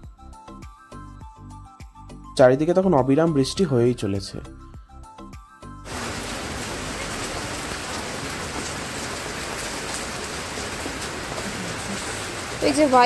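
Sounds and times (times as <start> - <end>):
raindrop ticks: 5.9 - 13.0
steady rain hiss: 5.9 - 13.0.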